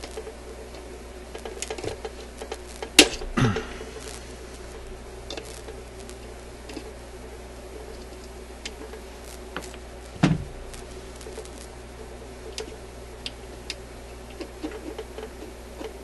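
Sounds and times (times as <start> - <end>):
steady low hum: 0.0 - 16.0
loud knock: 10.2 - 10.6.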